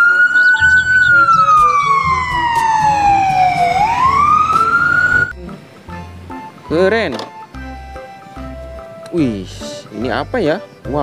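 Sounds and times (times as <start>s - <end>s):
ambulance siren wailing: 0.0s - 5.4s.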